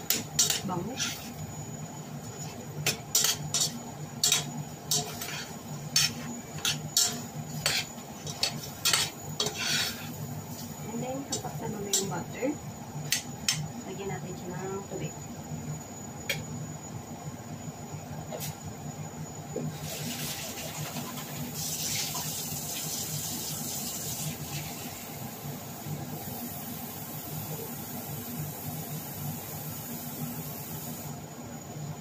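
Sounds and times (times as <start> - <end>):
low steady hum: 0.0 - 19.6
tap water running: 19.8 - 24.7.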